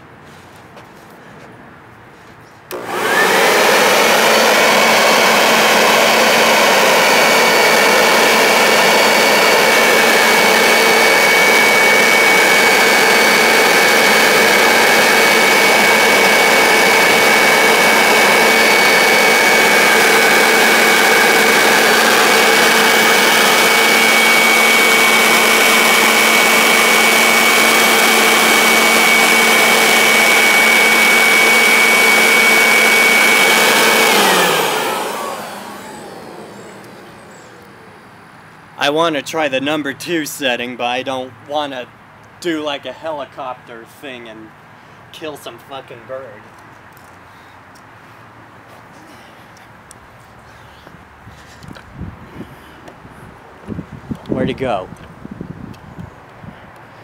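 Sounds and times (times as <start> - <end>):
leaf blower whining: 2.7 - 39.5.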